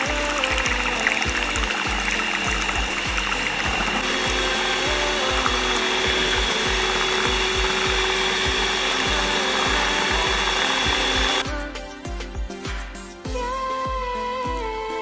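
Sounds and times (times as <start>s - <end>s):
electric hand mixer whirring: 0.0s - 11.4s
background music with steady beat: 0.0s - 15.0s.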